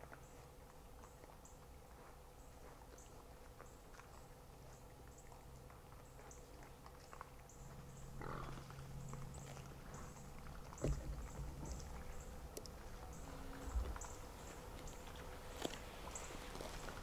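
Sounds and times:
hogs grunting: 0:07.6 - 0:12.2.

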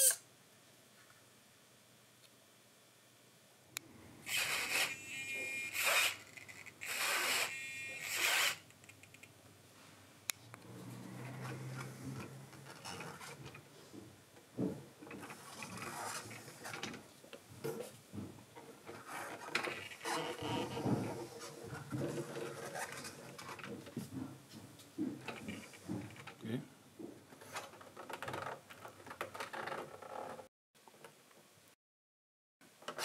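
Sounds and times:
short rasping bursts: 0:04.2 - 0:08.7.

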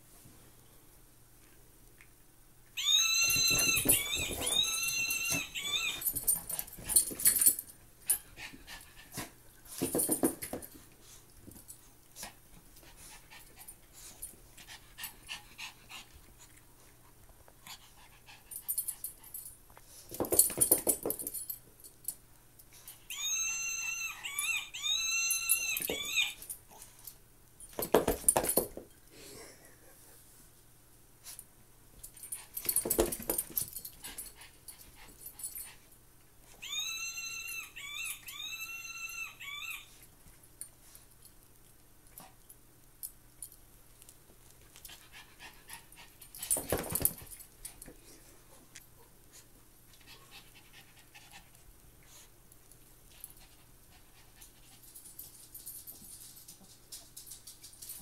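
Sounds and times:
high-pitched dog squeaks: 0:02.8 - 0:06.7, 0:23.1 - 0:26.5, 0:36.5 - 0:40.0
dogs scuffling: 0:02.8 - 0:08.2.

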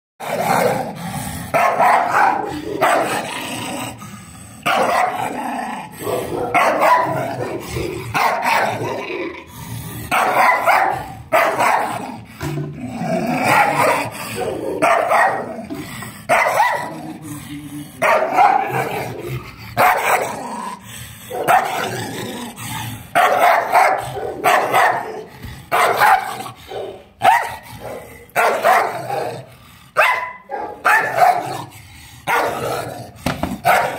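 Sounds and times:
dog barking aggressively: 0:00.2 - 0:04.0, 0:04.6 - 0:09.0, 0:10.0 - 0:17.2, 0:18.0 - 0:20.6, 0:21.2 - 0:33.9
dog snarling and growling: 0:00.2 - 0:33.9.

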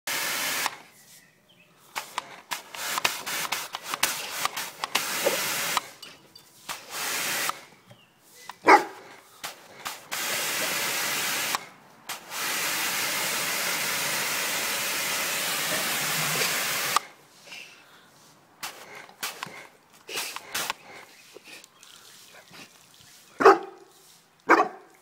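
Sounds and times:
pressure washer jet hissing: 0:00.1 - 0:00.8, 0:02.0 - 0:06.0, 0:06.6 - 0:07.7, 0:09.4 - 0:17.1, 0:18.6 - 0:21.6
dog barking: 0:08.6 - 0:09.0, 0:23.4 - 0:23.9, 0:24.5 - 0:24.9.

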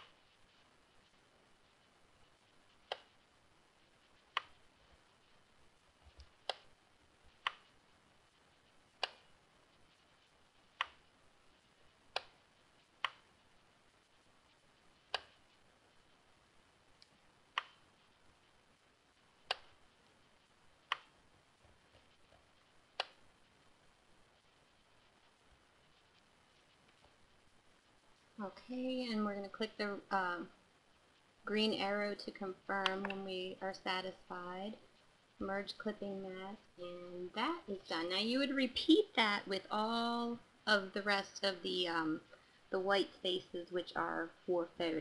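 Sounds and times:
faint high whine: 0:00.0 - 0:45.0.

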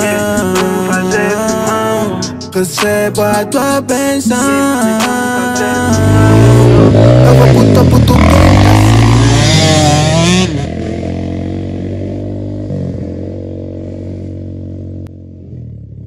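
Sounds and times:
motorcycle engine revving: 0:05.0 - 0:16.0.

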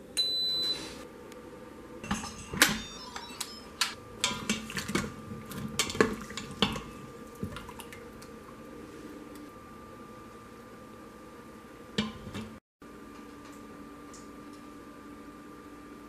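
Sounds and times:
high electronic beep: 0:02.8 - 0:03.8.

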